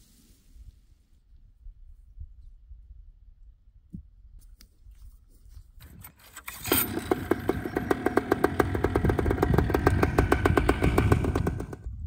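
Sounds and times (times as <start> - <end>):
two-stroke engine starting and running: 5.8 - 12.0.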